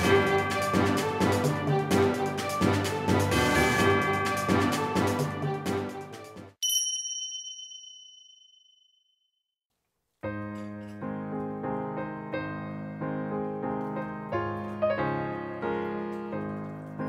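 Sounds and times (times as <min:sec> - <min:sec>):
background music: 0:00.0 - 0:06.6
bright chime ringing: 0:06.6 - 0:09.0
gentle piano music: 0:10.2 - 0:17.0.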